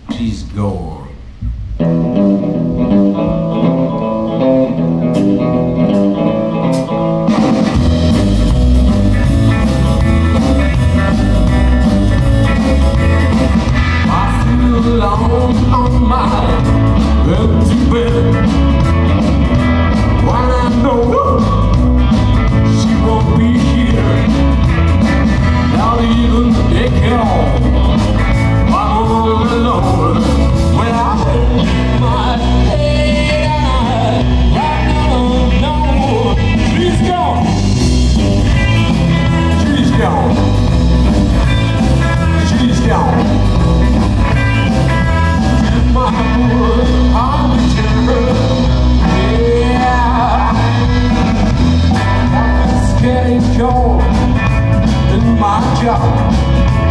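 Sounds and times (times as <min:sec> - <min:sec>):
guitar: 0:00.0 - 0:56.9
live blues-rock band: 0:01.2 - 0:56.9
person singing: 0:13.7 - 0:18.9, 0:20.0 - 0:21.8, 0:22.5 - 0:24.6, 0:25.5 - 0:27.8, 0:28.5 - 0:37.8, 0:38.6 - 0:40.6, 0:42.1 - 0:43.7, 0:45.0 - 0:56.9.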